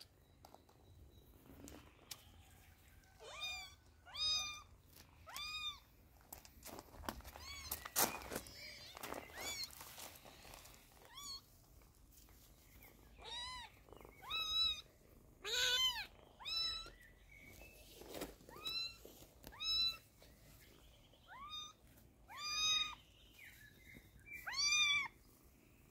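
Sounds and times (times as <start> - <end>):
kitten meowing: 3.2 - 4.7, 5.3 - 5.8, 13.2 - 17.0, 21.3 - 23.0, 24.4 - 25.1.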